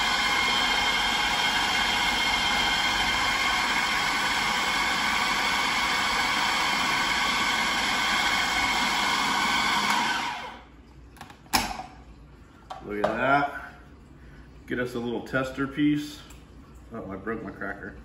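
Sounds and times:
food processor motor whining: 0.0 - 10.6.

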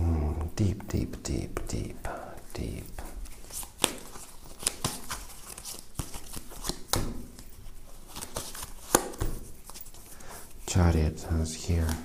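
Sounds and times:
cards shuffling with snaps: 2.4 - 10.1, 11.7 - 12.0.

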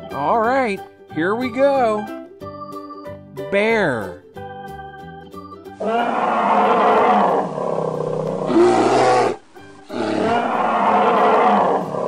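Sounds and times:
bear roaring: 5.8 - 12.0.

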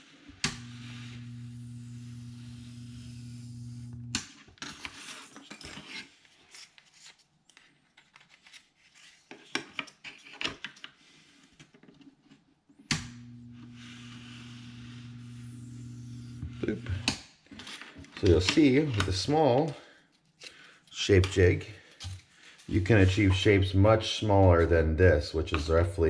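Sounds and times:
hot wire cutter humming: 0.4 - 4.2, 12.9 - 17.2.

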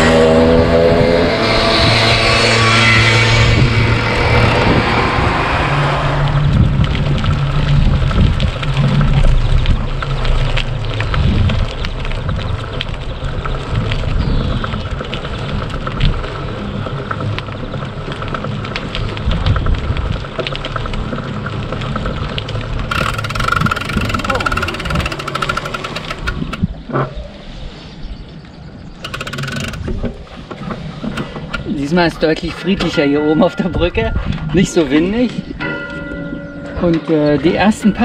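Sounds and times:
bicycle tyres rumbling: 0.0 - 36.6
bicycle rattles and clicks: 6.2 - 26.9, 28.8 - 33.0.

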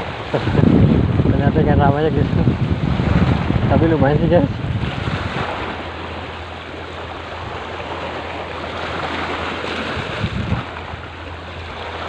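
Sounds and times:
low rumble: 0.0 - 12.0
waves lapping at shore: 0.0 - 12.0
wind gusts on microphone: 0.0 - 12.0.

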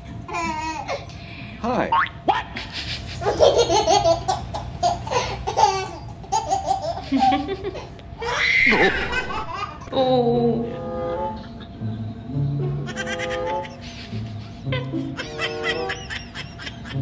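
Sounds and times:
baby laughing: 0.3 - 1.0, 2.4 - 9.9, 12.8 - 17.0
baby squealing: 8.2 - 9.8.

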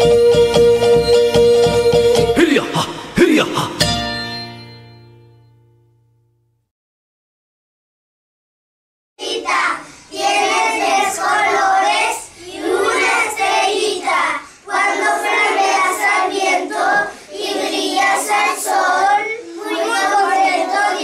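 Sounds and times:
children reciting in unison: 9.2 - 21.0.

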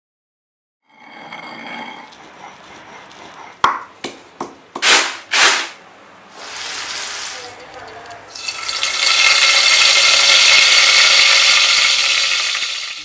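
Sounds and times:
stone pestle pounding in mortar: 2.2 - 5.2.

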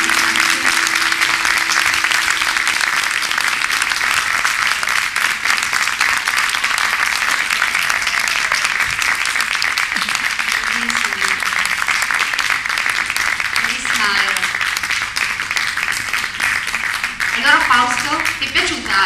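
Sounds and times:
band holding last note: 0.0 - 4.8
audience applauding: 0.0 - 19.0.

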